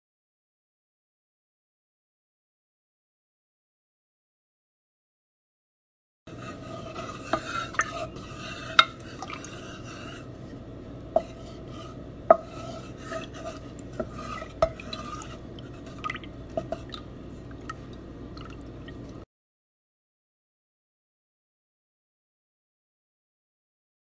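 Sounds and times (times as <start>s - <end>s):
utensil stirring in glass bowl: 6.3s - 19.2s.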